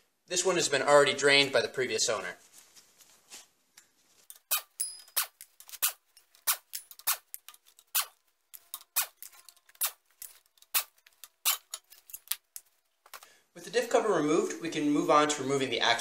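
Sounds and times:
air impact wrench metallic clicks: 0:04.3 - 0:12.4.

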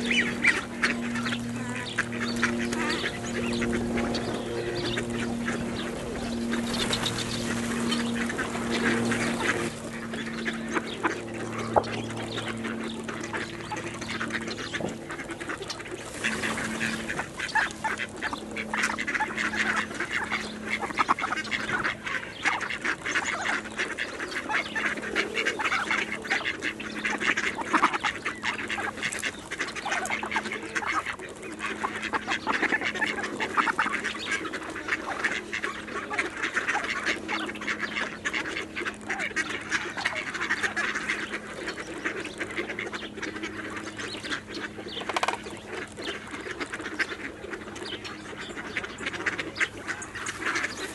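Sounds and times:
ducks quacking: 0:00.0 - 0:50.9.

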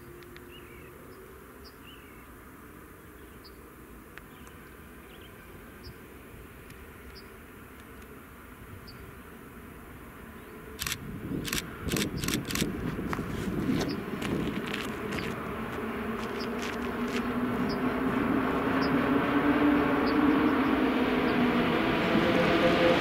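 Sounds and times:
sharp clicks: 0:10.8 - 0:12.9.

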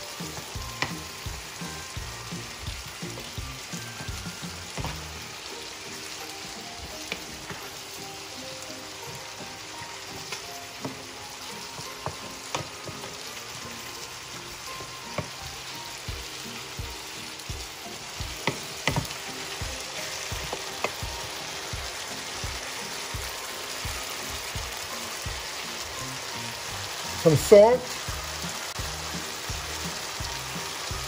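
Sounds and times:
vegetables sizzling in skillet: 0:00.0 - 0:31.0
spoon knocking against pan: 0:18.2 - 0:19.2.

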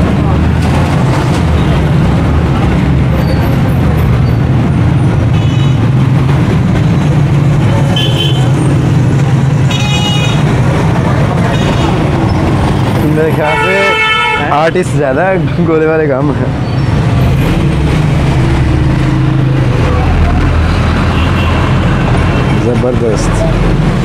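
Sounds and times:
street traffic rumble: 0:00.0 - 0:24.0
vehicle horn toots: 0:13.4 - 0:14.5.

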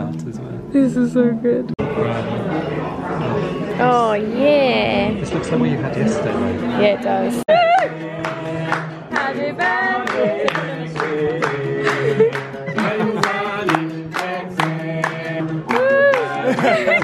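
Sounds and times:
men singing together: 0:07.5 - 0:17.0.

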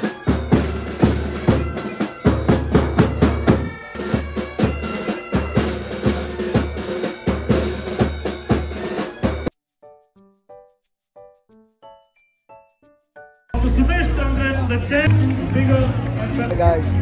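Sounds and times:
bagpipes: 0:00.0 - 0:09.5
drums beating march rhythm: 0:00.0 - 0:09.5.

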